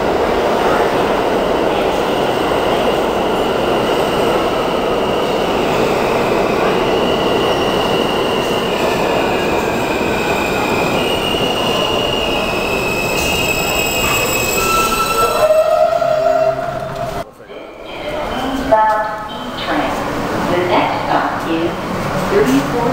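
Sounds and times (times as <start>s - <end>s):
subway train rumbling: 0.0s - 22.9s
wheel and brake squeals: 10.2s - 16.6s.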